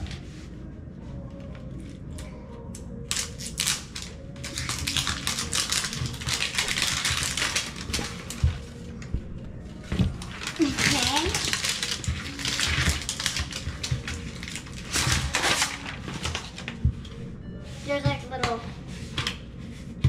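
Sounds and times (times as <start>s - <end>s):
wrapping crinkling and tearing: 3.1s - 8.7s, 10.1s - 16.8s.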